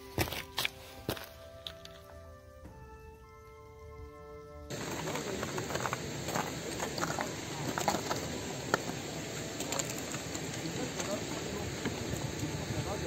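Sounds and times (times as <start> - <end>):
footsteps on rocky ground: 0.0 - 2.8, 4.7 - 13.0
rushing wind or stream: 4.7 - 13.0.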